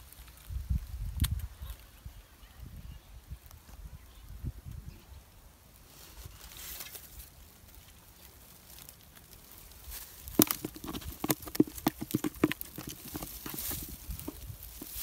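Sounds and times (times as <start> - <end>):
dry leaves rustling: 5.6 - 15.0
fish thrashing in plastic bucket: 10.0 - 15.0.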